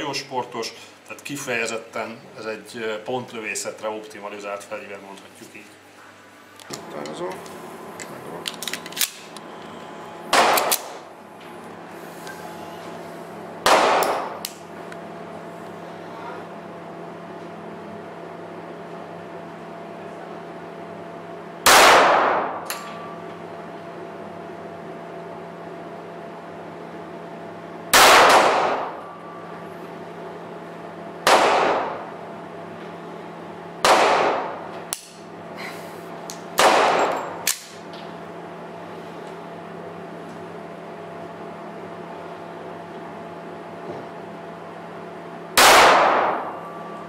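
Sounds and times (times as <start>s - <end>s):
pistol shots echoing: 10.3s - 11.0s, 13.6s - 14.4s, 21.6s - 22.6s, 27.9s - 29.0s, 31.2s - 32.0s, 33.8s - 34.6s, 36.6s - 37.8s, 45.6s - 46.6s.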